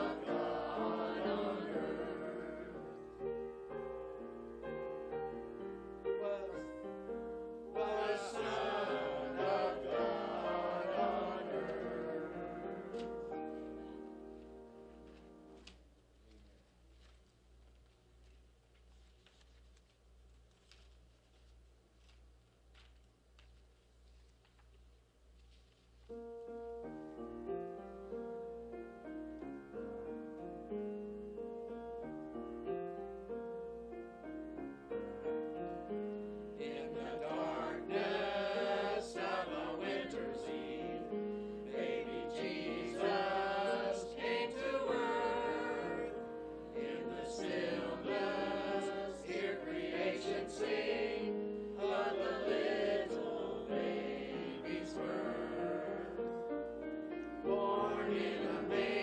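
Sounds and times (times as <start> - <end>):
choir singing: 0.0 - 3.8, 7.6 - 14.6, 35.2 - 59.0.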